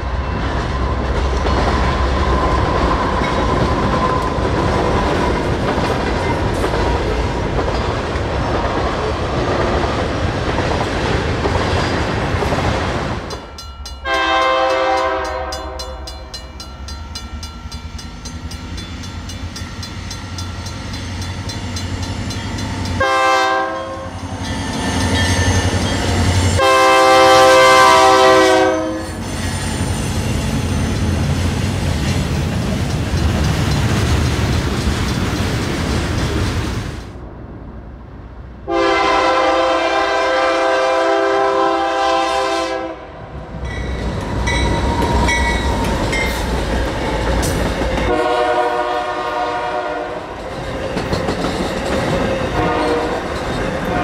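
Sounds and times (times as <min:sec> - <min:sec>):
train wheel and rail rumble: 0:00.0 - 0:54.0
locomotive air horn: 0:14.0 - 0:16.1, 0:23.0 - 0:24.2, 0:26.6 - 0:29.3, 0:38.7 - 0:43.2, 0:48.1 - 0:50.3, 0:52.6 - 0:53.2.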